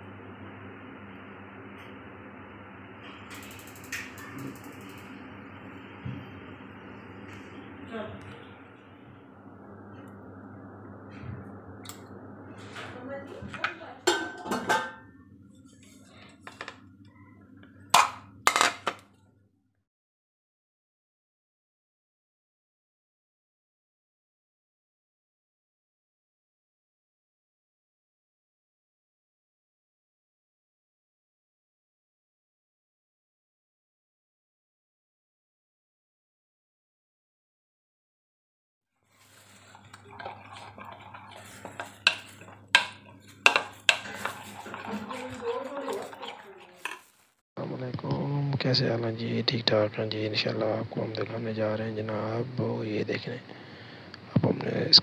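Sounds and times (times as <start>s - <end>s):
low steady hum: 0.0s - 19.3s, 39.1s - 55.0s
dishes clinking against a bowl: 14.1s - 15.1s, 39.9s - 47.1s.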